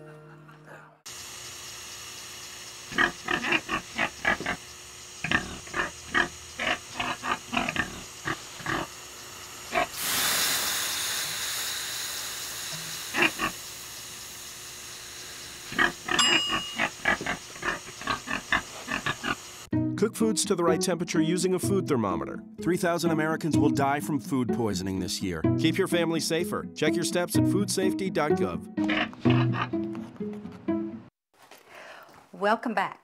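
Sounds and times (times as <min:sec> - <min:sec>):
steam hissing on hot stones: 0:01.1 - 0:19.7
pig grunting: 0:02.9 - 0:04.6, 0:05.2 - 0:09.0, 0:09.7 - 0:10.0, 0:13.1 - 0:13.6, 0:15.7 - 0:19.4, 0:28.8 - 0:29.8.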